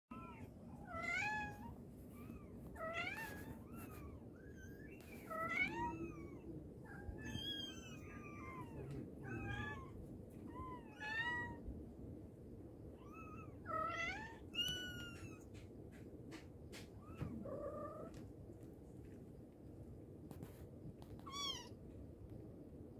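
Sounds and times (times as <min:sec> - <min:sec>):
cat meowing: 0:02.3 - 0:11.6, 0:13.0 - 0:15.4.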